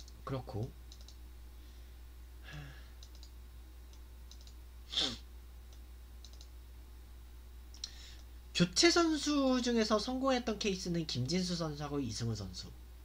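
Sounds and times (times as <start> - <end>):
low electrical hum: 0.0 - 13.0
keyboard or mouse clicks: 0.9 - 1.2, 3.0 - 4.6, 5.7 - 6.5.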